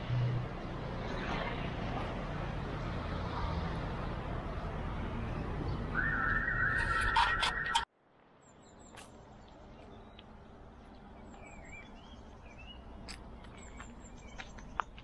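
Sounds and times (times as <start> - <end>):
small birds chirping: 8.4 - 15.0.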